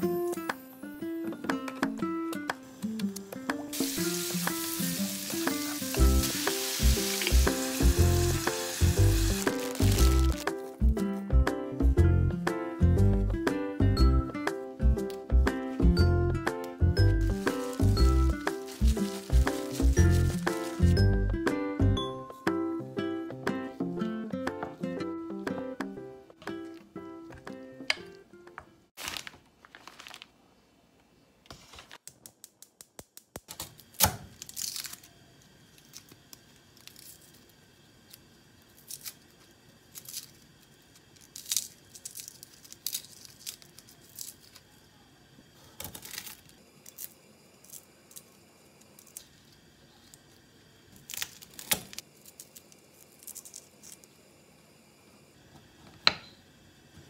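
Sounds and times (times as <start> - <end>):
garlic skins crackling and tearing: 8.7 - 10.5, 17.3 - 21.0, 33.9 - 35.2, 35.8 - 37.5, 38.7 - 44.7, 45.8 - 48.2, 51.0 - 54.1.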